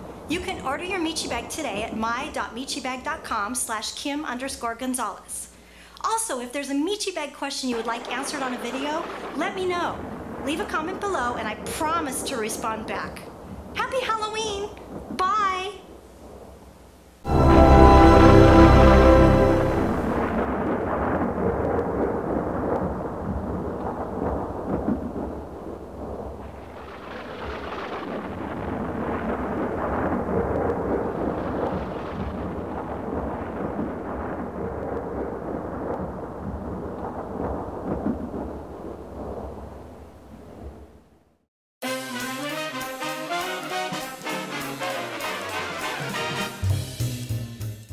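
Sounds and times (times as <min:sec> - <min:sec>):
low rumbling noise with hiss: 0:00.0 - 0:27.5.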